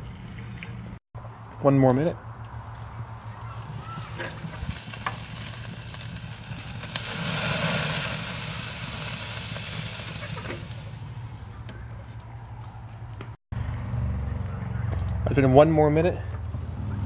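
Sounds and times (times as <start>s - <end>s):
meat sizzling on a grill: 3.6s - 11.0s.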